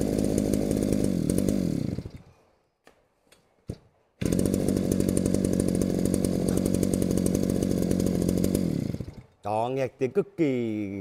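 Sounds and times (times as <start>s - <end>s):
brushcutter engine revving: 0.0s - 2.3s, 4.2s - 9.6s.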